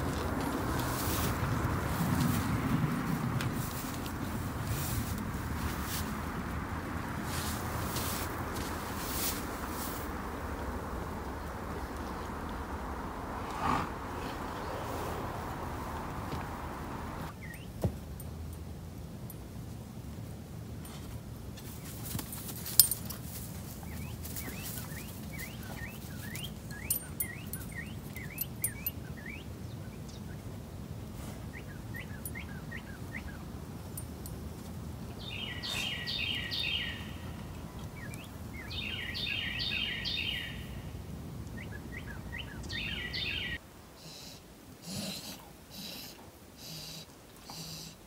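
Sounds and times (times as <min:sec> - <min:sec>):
low rumble: 0:00.0 - 0:17.3
animal breathing: 0:13.4 - 0:15.7, 0:44.0 - 0:48.0
birds chirping and singing: 0:35.2 - 0:40.7, 0:41.6 - 0:43.6.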